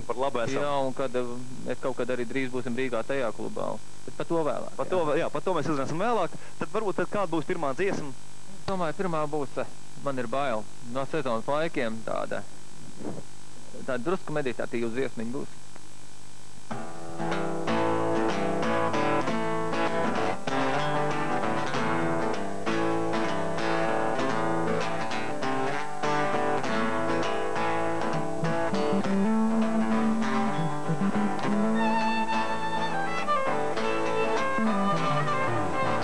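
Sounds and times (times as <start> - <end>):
picked acoustic guitar: 0.0 - 3.7, 16.7 - 36.0
electric bass: 17.1 - 36.0
bowed violin: 28.7 - 36.0.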